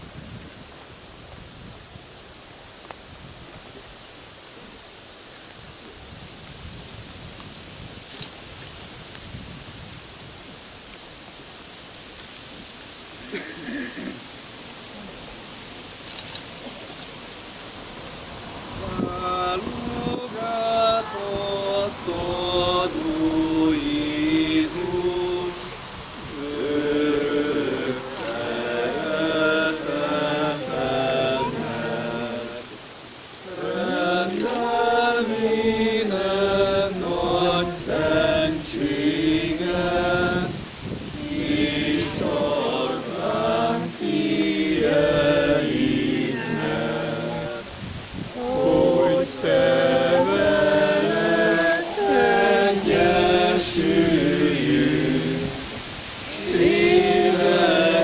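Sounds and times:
group singing a hymn: 0:17.9 - 0:58.0.

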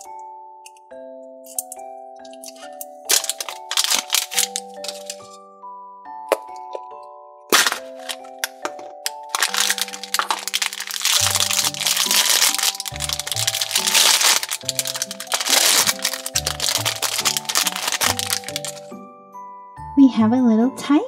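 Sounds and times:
light background music: 0:00.0 - 0:21.0
plastic capsule clicks: 0:01.5 - 0:05.3, 0:07.5 - 0:18.8
plastic wrapper crinkling and tearing: 0:02.3 - 0:05.4, 0:07.5 - 0:18.9.

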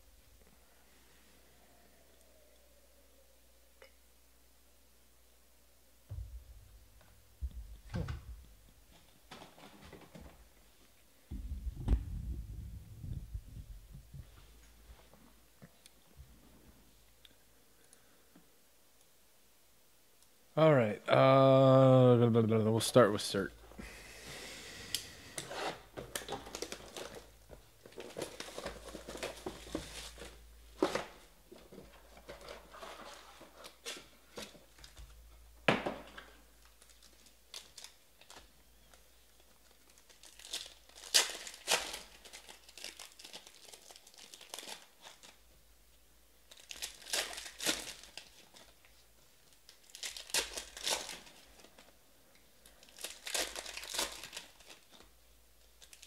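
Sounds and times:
foil wrappers crinkling and tearing: 0:25.4 - 0:31.3, 0:36.6 - 0:45.4, 0:46.4 - 0:52.0, 0:52.6 - 0:56.0.

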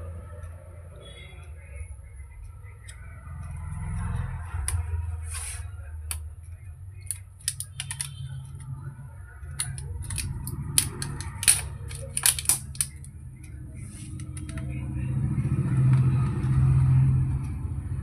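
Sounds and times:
plastic and metal clicks: 0:07.0 - 0:08.6, 0:09.5 - 0:13.1.

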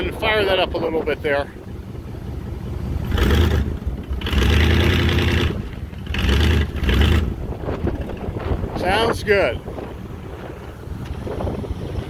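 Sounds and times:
car engine revving: 0:02.9 - 0:08.9.

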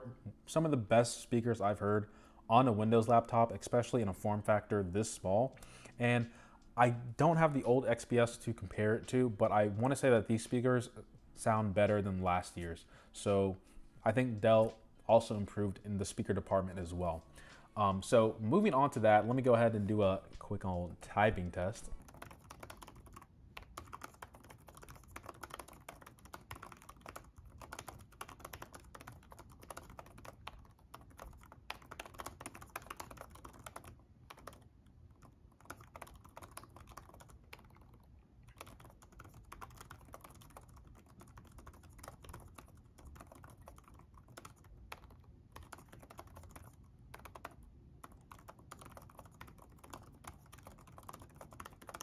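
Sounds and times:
laptop keyboard typing: 0:20.4 - 0:52.0.

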